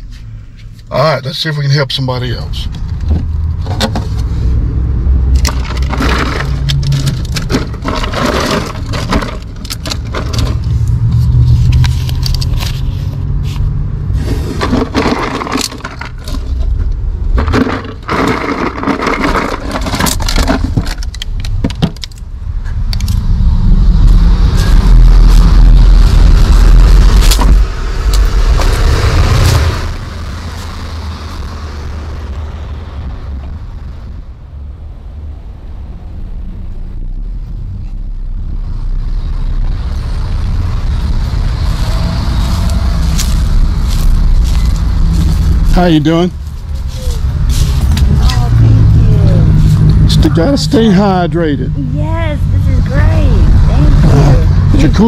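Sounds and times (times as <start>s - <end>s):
bottles clattering in cooler: 5.5s - 10.6s, 14.6s - 16.5s, 17.4s - 21.0s
loud low rumble: 22.2s - 55.0s.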